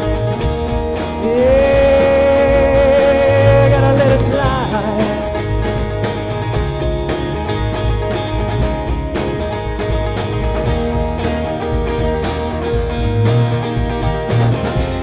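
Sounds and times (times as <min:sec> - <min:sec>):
bass guitar: 0:00.0 - 0:15.0
drum kit beat: 0:00.0 - 0:15.0
electric guitar: 0:00.0 - 0:15.0.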